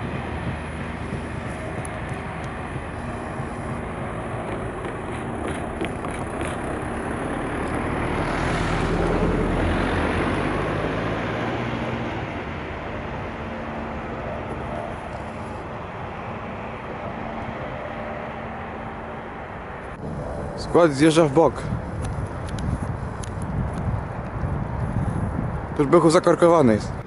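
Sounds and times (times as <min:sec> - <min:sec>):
freight train wheels rolling: 0:00.0 - 0:08.3.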